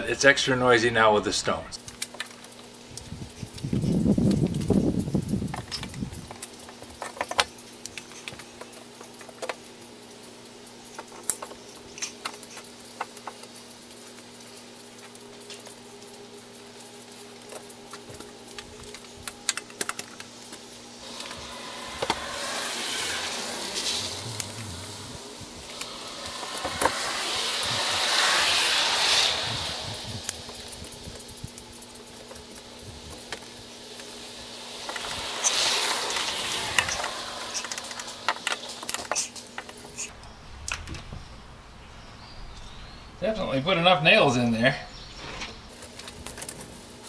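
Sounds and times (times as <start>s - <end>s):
car tyres hissing on road: 20.7s - 40.1s.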